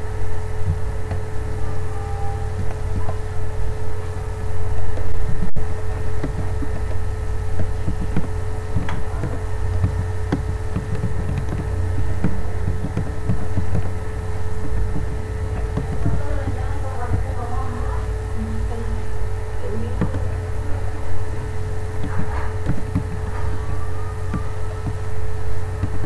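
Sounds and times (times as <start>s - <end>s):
constant tone: 0.0s - 26.0s
low electrical hum: 0.0s - 26.0s
keyboard typing clicks: 6.1s - 13.9s, 14.6s - 17.3s, 21.9s - 26.0s.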